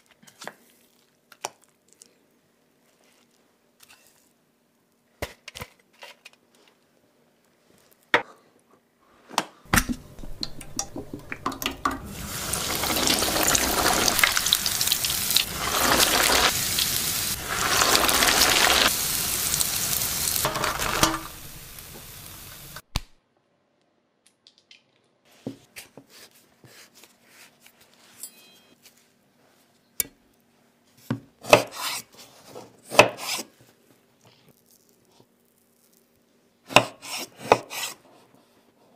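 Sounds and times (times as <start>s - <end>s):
soft handling sounds: 0.0s - 4.4s
cutlet sizzling in hot oil: 10.1s - 22.8s.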